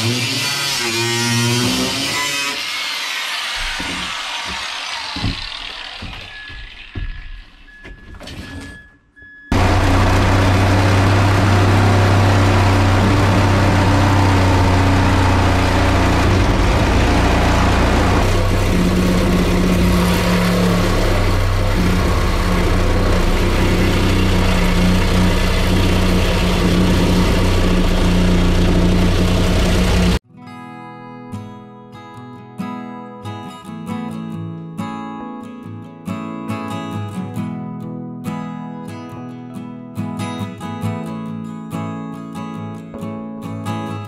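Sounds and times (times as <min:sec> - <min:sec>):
loud engine running: 0:09.5 - 0:30.2.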